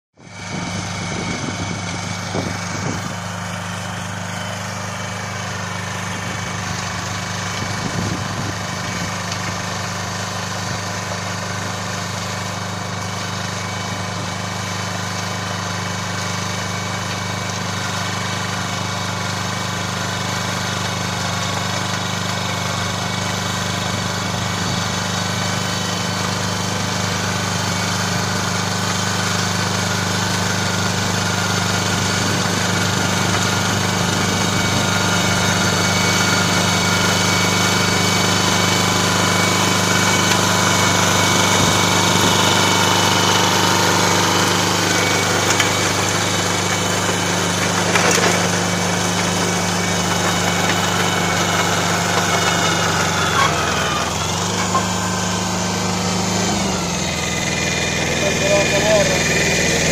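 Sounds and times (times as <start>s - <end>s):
tractor engine running under load: 0.2s - 59.9s.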